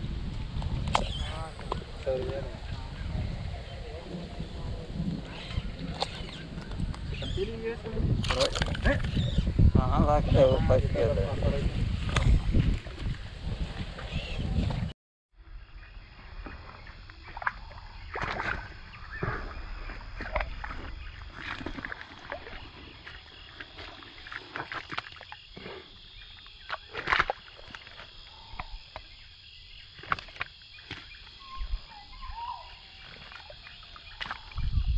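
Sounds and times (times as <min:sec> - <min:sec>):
fish slapping and splashing in mud: 0:08.2 - 0:09.2, 0:17.2 - 0:25.7, 0:26.4 - 0:29.1, 0:29.9 - 0:31.4, 0:32.9 - 0:34.6.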